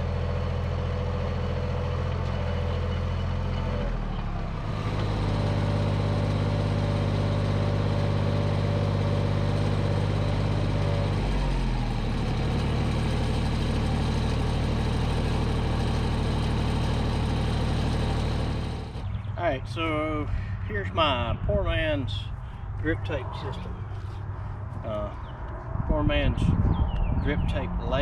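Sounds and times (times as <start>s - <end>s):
tractor engine running: 0.0s - 19.8s.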